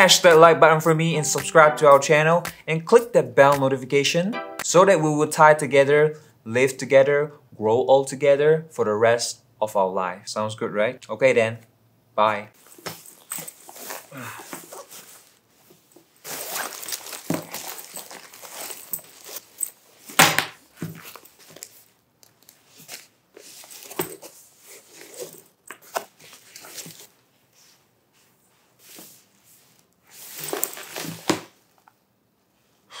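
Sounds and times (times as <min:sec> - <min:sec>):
plastic bags rustling and crinkling: 0:12.6 - 0:27.2, 0:30.1 - 0:31.8.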